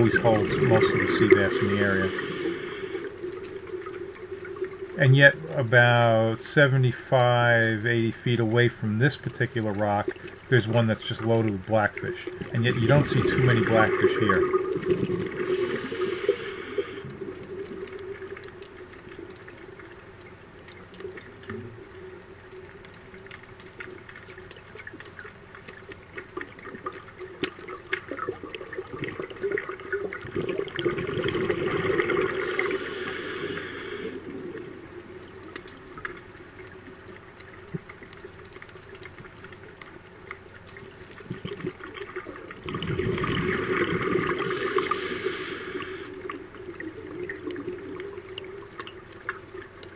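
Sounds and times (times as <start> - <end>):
exhaled bubbles underwater: 0.0 - 6.4, 8.5 - 49.9
steady low hum: 0.0 - 23.6
faint crackling: 0.0 - 49.9.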